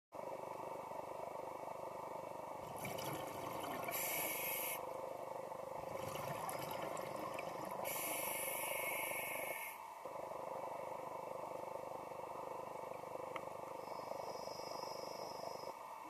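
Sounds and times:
underwater water rush: 2.6 - 4.7, 5.8 - 8.3
diver breathing through regulator: 7.5 - 9.8.

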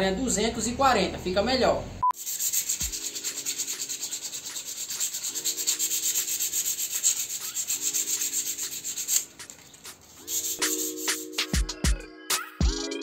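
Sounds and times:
sandpaper scratching on wood: 2.2 - 11.6.

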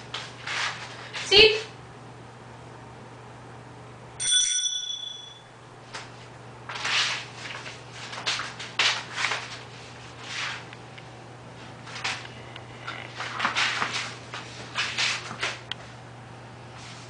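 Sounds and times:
small bell ringing: 4.2 - 5.6
puppy scrambling on tile floor: 12.8 - 15.6.

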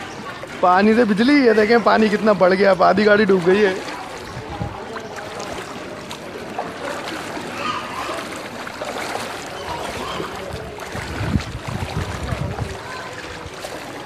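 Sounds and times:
water sloshing as someone wades: 0.0 - 14.0.

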